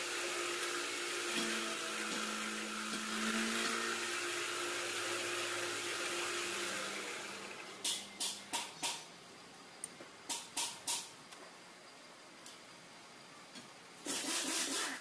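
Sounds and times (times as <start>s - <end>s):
sharp metallic clicks: 7.8s - 9.1s, 9.8s - 11.4s
boring machine hissing: 14.0s - 15.0s.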